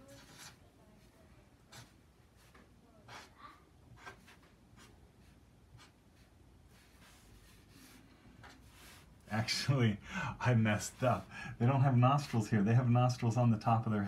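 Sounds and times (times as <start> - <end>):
felt-tip marker scratching on paper: 0.0 - 0.6, 1.7 - 8.0.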